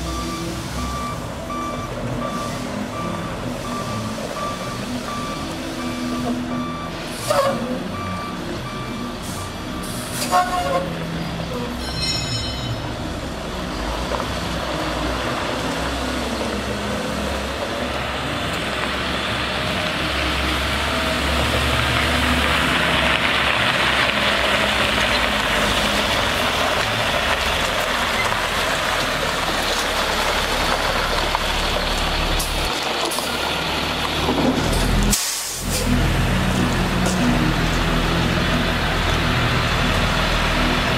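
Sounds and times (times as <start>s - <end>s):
truck diesel engine running: 12.8s - 40.9s.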